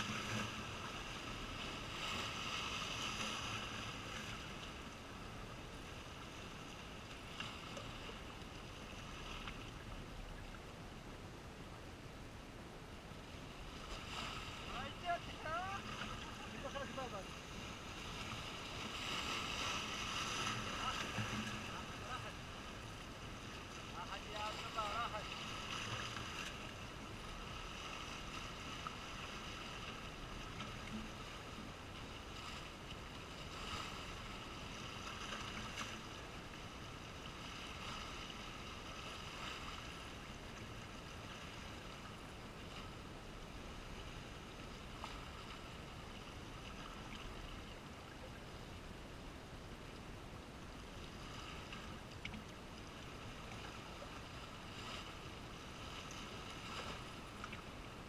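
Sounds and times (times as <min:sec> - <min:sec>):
waves splashing against rocks: 0:13.8 - 0:36.6.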